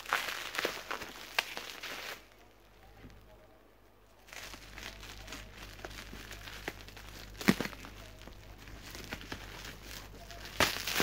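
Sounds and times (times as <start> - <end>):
bubble wrap and tape crinkling: 0.0 - 3.3, 4.2 - 11.0
sharp crack: 10.5 - 11.0.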